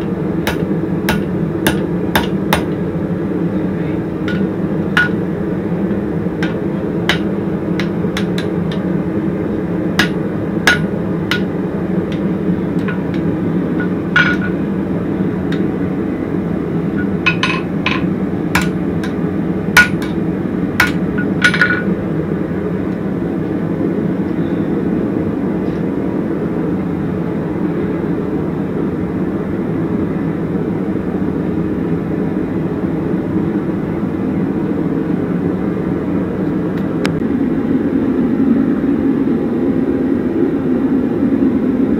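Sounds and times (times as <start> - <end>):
hammer striking steel on anvil: 0.5 - 2.8, 4.2 - 5.2, 5.9 - 8.8, 10.0 - 14.6, 17.0 - 19.2, 19.8 - 20.2, 20.8 - 21.9
low rumble: 36.9 - 41.9.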